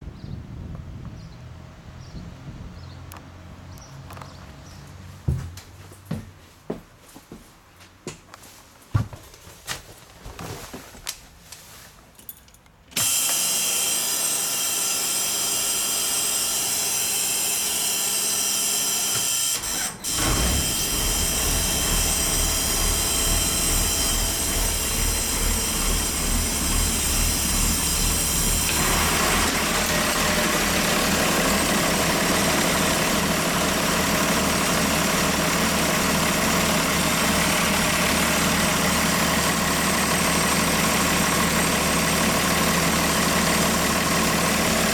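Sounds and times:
starter motor whirring: 12.9s - 44.9s
diesel engine idling: 19.6s - 44.9s.

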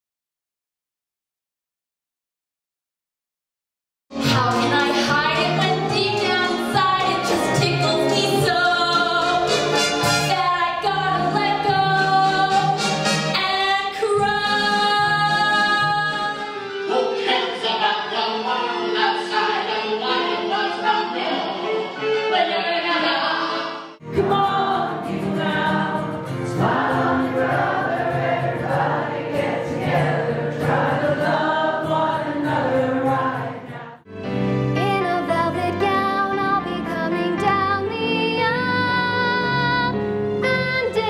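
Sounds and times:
stage musical singing with accompaniment: 4.2s - 34.0s.

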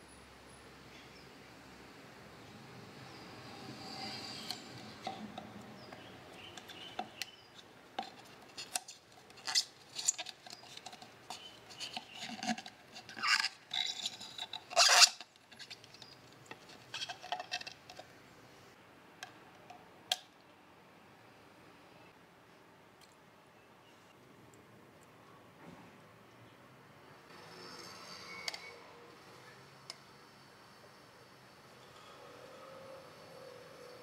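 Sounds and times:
plastic cup rustling and crackling: 4.5s - 18.1s.

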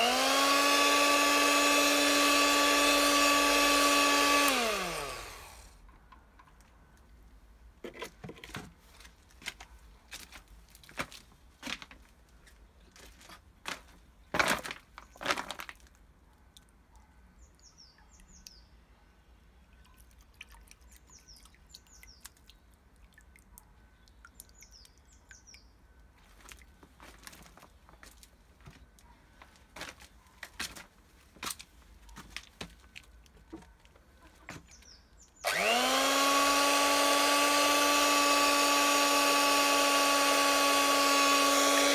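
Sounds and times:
electric hand mixer whine: 0.0s - 5.7s, 35.4s - 41.9s
bird chirping: 17.3s - 20.0s, 20.9s - 22.7s, 23.9s - 26.0s, 34.2s - 35.5s.

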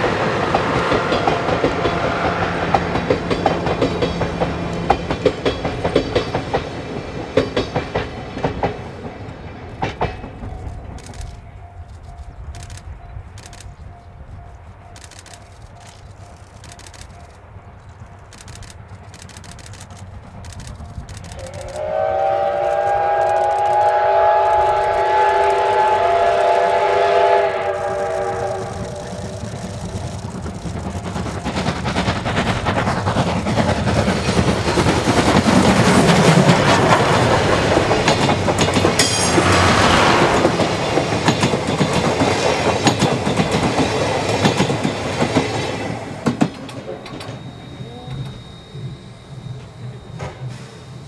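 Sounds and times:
train wheels clattering on rails: 0.0s - 51.0s
steam whistle blast: 21.4s - 29.5s.

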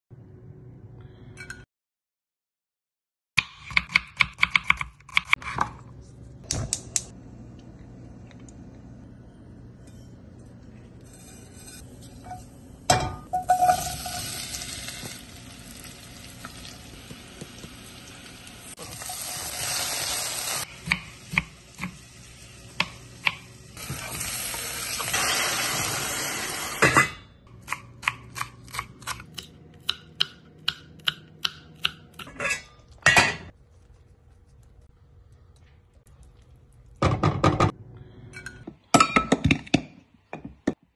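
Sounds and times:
seeds sizzling in hot oil: 13.5s - 20.8s.

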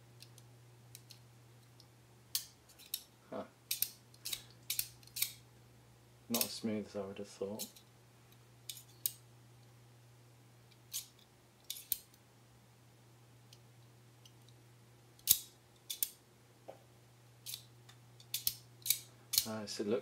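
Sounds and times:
steady low hum: 0.0s - 20.0s
knife blade slide clicks and scrapes: 3.7s - 5.4s, 10.8s - 11.1s, 15.2s - 16.2s.

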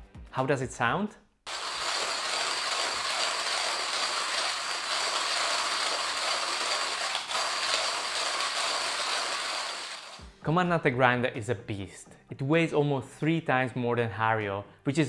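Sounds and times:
hand coffee grinder grinding: 1.5s - 10.3s.

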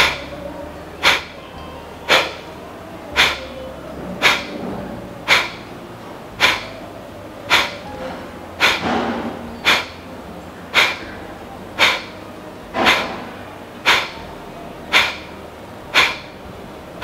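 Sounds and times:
forceful nasal exhalations: 1.0s - 1.4s, 3.1s - 3.6s, 4.2s - 4.6s, 5.3s - 5.7s, 6.4s - 6.8s, 7.5s - 7.8s, 8.6s - 10.0s, 10.7s - 11.2s, 11.8s - 12.2s, 13.8s - 14.2s, 14.9s - 15.3s, 15.9s - 16.3s.

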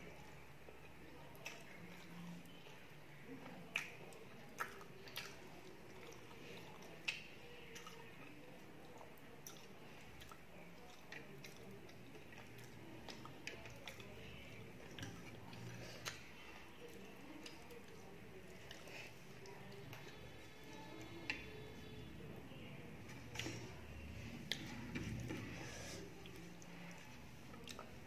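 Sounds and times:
person chewing: 3.7s - 14.2s, 14.8s - 16.7s, 24.4s - 28.0s.

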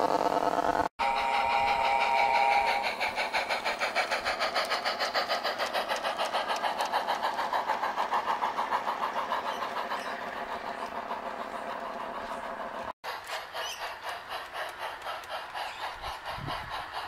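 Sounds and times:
model steam locomotive chuffing: 0.0s - 17.0s
steam whistle tone: 1.0s - 3.4s.

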